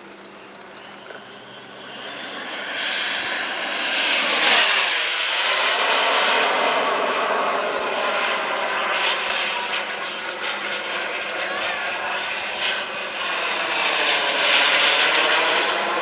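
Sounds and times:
model jet turbine flying past: 0.0s - 16.0s.

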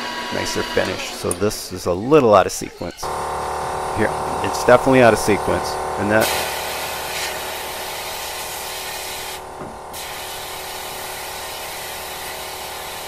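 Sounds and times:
sandblast nozzle hissing: 3.0s - 13.0s.

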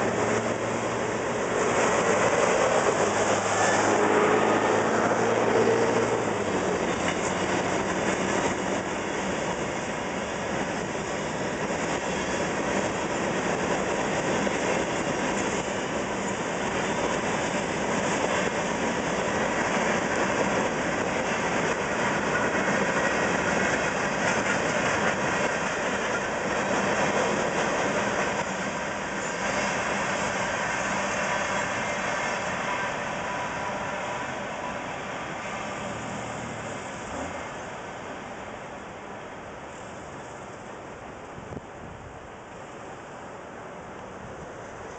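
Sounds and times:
steel wheels on rail: 0.0s - 41.3s
freight train rolling past: 0.0s - 44.9s.

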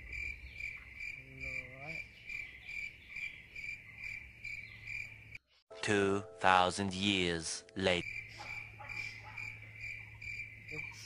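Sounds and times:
cricket chirping: 0.0s - 5.4s, 7.9s - 11.0s.

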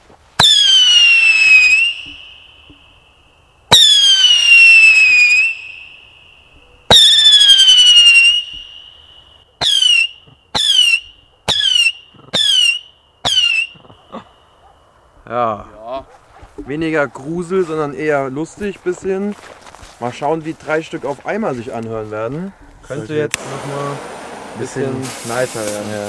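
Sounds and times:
firework whistle falling in pitch: 0.4s - 2.9s, 3.7s - 6.3s, 6.9s - 13.8s
firework shot popping: 23.3s - 26.0s.

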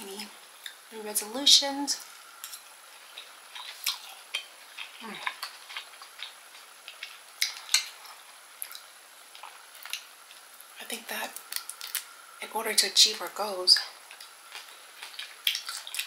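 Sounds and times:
eating sounds: 3.0s - 10.1s, 13.8s - 16.0s.

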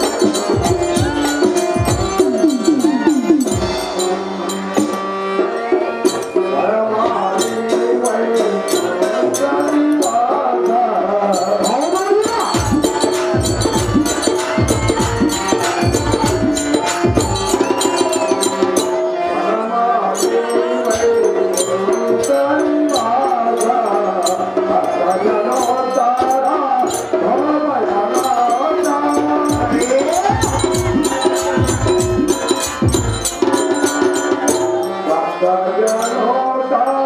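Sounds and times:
barrel drum beating: 0.0s - 5.8s, 12.4s - 18.8s, 29.5s - 34.8s
fast jingling percussion: 0.0s - 37.0s
person singing: 0.0s - 37.0s.

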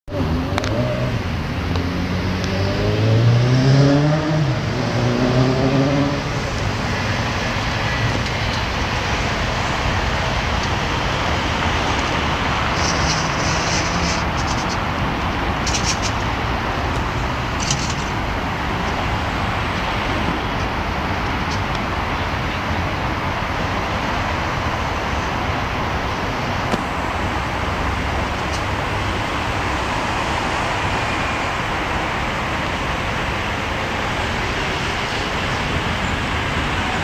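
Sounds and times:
car engine revving: 0.1s - 20.3s
traffic and tyre noise: 0.1s - 37.0s.

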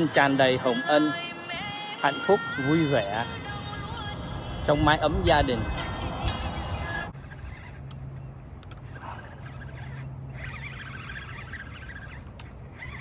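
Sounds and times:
steady low hum: 0.0s - 13.0s
birds chirping and warbling: 4.0s - 13.0s.

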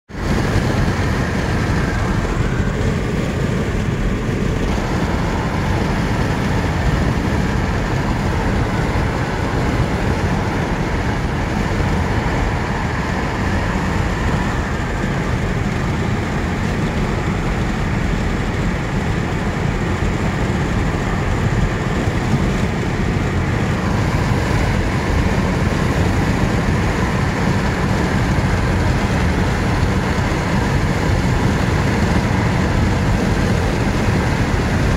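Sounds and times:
car road and wind noise: 0.0s - 34.9s.

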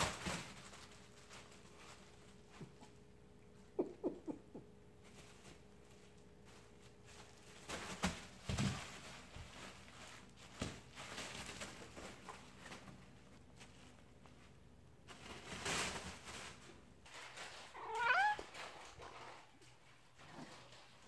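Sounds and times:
rustling and crinkling: 0.0s - 3.7s, 4.8s - 21.0s
cat squeaks: 17.8s - 18.5s.

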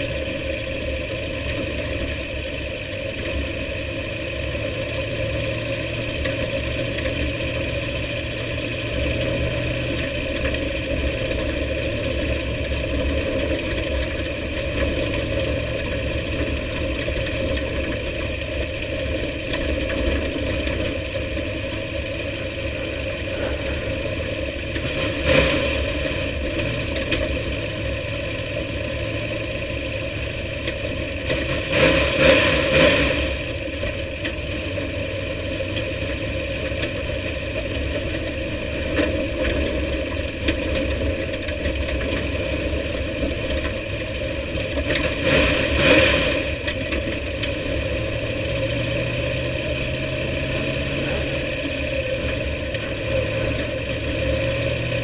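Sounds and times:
race car engine running: 0.0s - 55.0s
engine throttle bursts: 4.5s - 55.0s.

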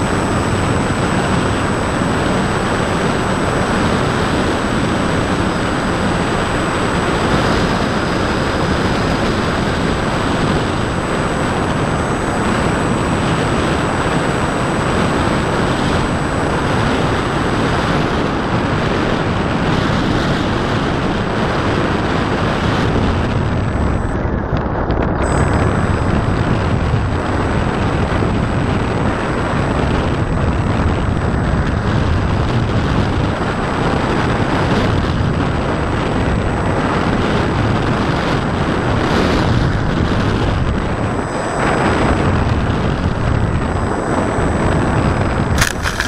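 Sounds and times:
electric motor and propeller: 0.0s - 46.0s
wind rushing over microphone: 0.0s - 46.0s
faint high whine: 40.6s - 46.0s.

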